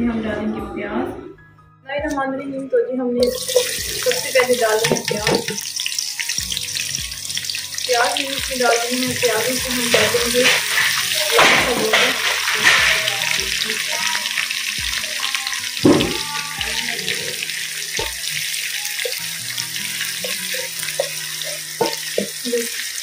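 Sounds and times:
wooden spoon knocking on pan: 3.2s - 5.7s, 8.2s - 13.6s, 15.8s - 16.8s, 21.8s - 22.4s
onions sizzling in a pan: 3.2s - 23.0s.

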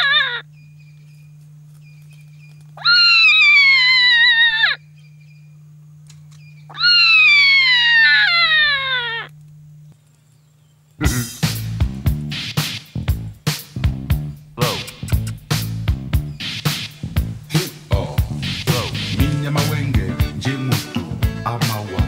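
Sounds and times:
jackal pup howling: 0.0s - 0.4s, 2.8s - 4.8s, 6.7s - 9.3s
faint low hum: 0.0s - 12.3s.

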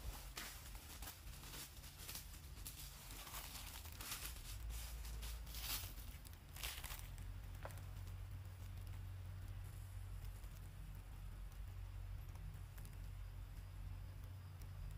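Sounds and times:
dry leaves rustling: 0.0s - 9.1s
faint low rumble: 0.0s - 14.9s.

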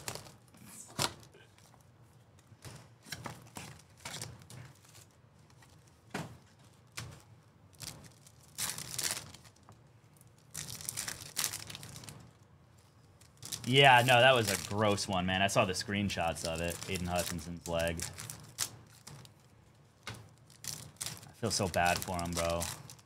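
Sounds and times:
card pack wrappers tearing: 0.0s - 1.8s, 6.8s - 12.5s, 13.2s - 19.4s, 20.2s - 23.0s.

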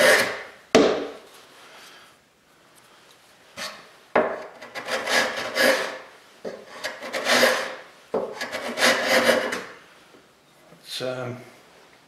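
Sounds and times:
hand plane shaving wood: 0.0s - 0.5s, 4.6s - 6.0s, 6.7s - 9.7s.

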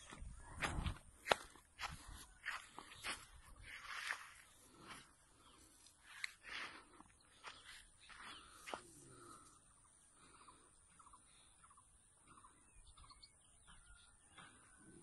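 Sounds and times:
faint bird calls: 4.8s - 15.0s.

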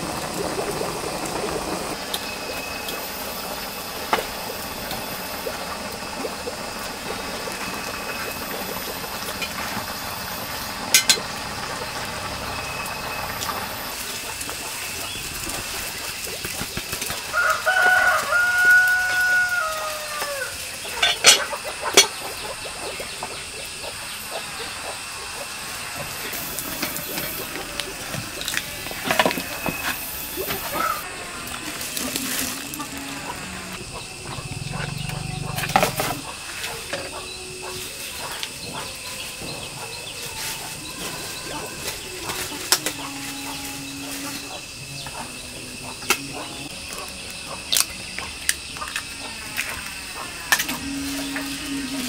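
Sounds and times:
fire and boiling pot hiss: 0.0s - 52.0s
rooster crowing: 17.2s - 21.6s, 25.8s - 47.6s
fire cracking: 26.1s - 36.5s.

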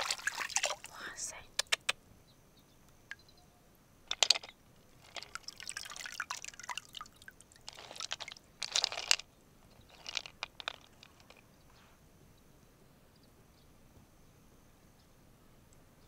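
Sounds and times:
water dripping and splashing: 0.0s - 0.9s, 5.0s - 8.9s
sharp clicks: 1.5s - 2.0s.

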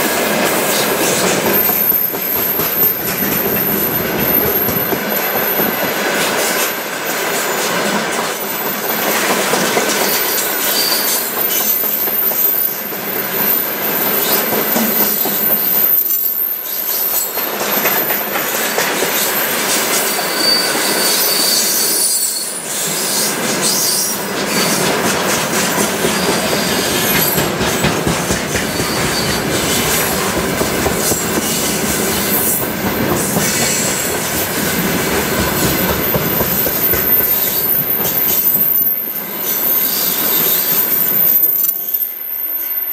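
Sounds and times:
train wheels clattering on rails: 0.0s - 22.0s, 22.8s - 41.1s
high-pitched wheel squeals: 10.1s - 17.5s, 19.3s - 24.8s, 30.9s - 42.9s.

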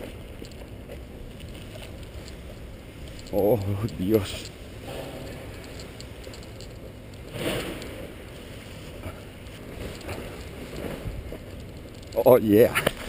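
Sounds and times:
wind on microphone: 8.9s - 11.6s.

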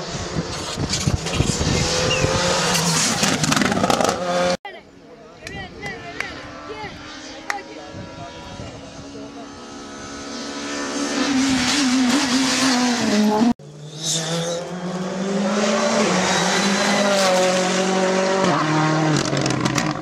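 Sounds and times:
rally car engine revving: 0.0s - 4.6s, 5.9s - 20.0s.

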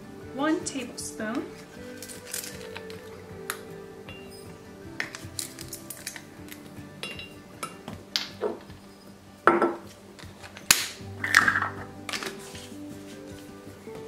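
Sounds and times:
soft background music: 0.0s - 14.0s
spoon and bottle clinking on jar: 1.9s - 4.4s, 5.0s - 8.6s.

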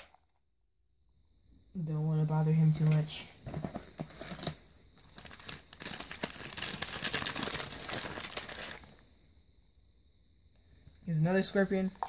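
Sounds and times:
packaging crinkling: 3.6s - 8.9s.

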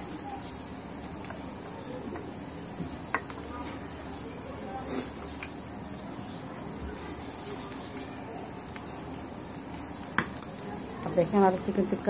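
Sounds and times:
meat sizzling on charcoal grill: 0.0s - 12.0s.

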